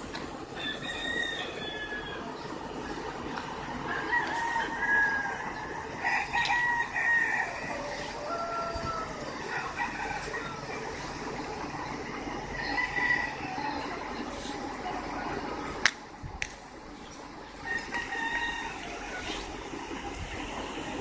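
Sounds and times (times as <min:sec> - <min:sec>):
roosters crowing: 0:00.4 - 0:03.0, 0:03.6 - 0:11.4, 0:12.3 - 0:14.0, 0:17.5 - 0:20.5.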